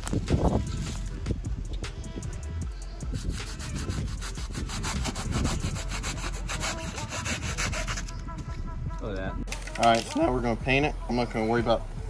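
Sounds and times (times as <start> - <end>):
blade sawing through foam: 3.2 - 8.1.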